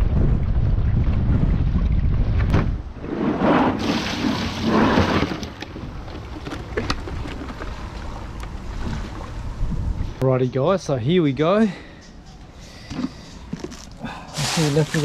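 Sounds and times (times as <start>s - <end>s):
wind buffeting microphone: 0.0s - 3.9s, 5.7s - 10.2s.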